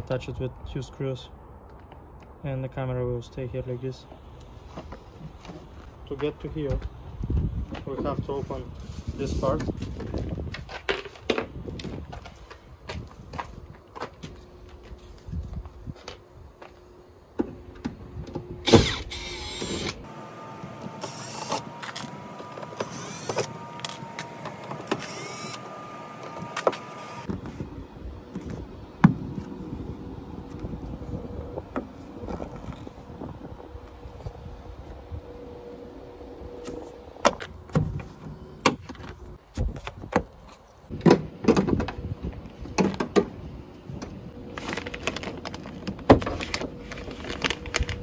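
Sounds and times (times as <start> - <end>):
cordless drill whirring: 18.7 - 27.3.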